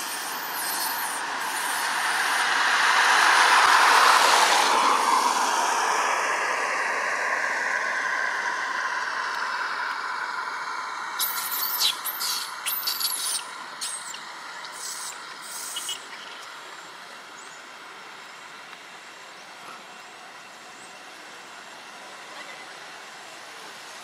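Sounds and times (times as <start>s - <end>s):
outdoor background hiss: 0.0s - 24.0s
high-pitched animal calls: 11.2s - 16.5s.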